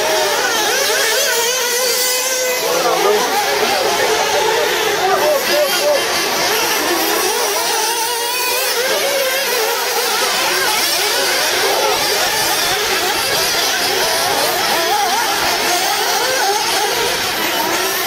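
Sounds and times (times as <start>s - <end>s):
small nitro engines racing: 0.0s - 18.0s.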